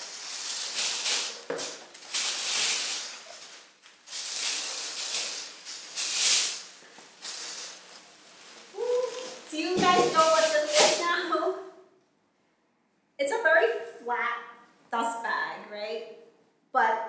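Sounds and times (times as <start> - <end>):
tissue paper rustling and crinkling: 0.0 - 11.5.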